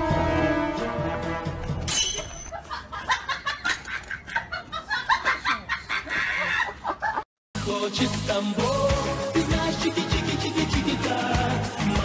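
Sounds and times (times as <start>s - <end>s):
music: 0.0s - 1.9s, 7.6s - 12.0s
cackling laughter: 2.5s - 7.2s.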